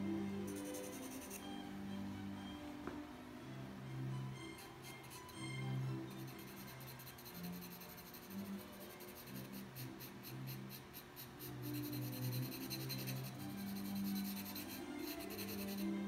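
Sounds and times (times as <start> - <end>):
charcoal pencil scratching paper: 0.5 - 1.4, 4.5 - 5.4, 6.1 - 16.0.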